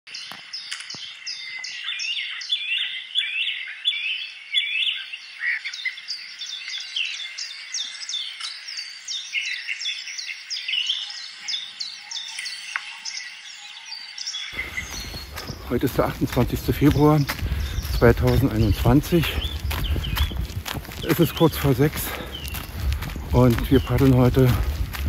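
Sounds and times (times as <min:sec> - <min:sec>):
small birds chirping: 0:00.1 - 0:25.0.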